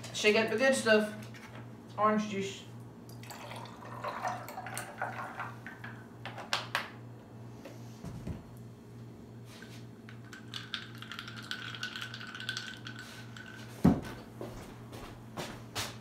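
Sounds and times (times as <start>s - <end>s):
ice cubes clinking in a glass: 10.2s - 13.6s.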